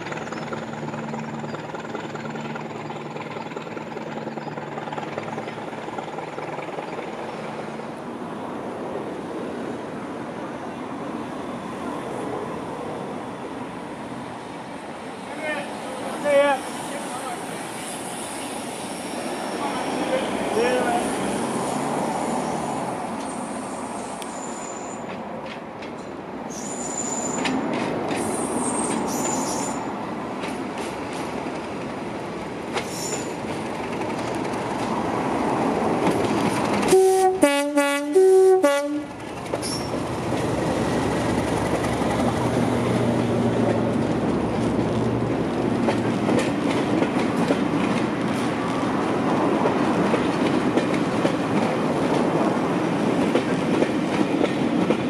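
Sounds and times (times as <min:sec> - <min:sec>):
train wheels clattering over rails: 0:00.0 - 0:07.8, 0:27.2 - 0:37.0, 0:39.1 - 0:55.0
locomotive diesel engine drone: 0:00.0 - 0:08.7
two-tone train horn: 0:36.9 - 0:39.1.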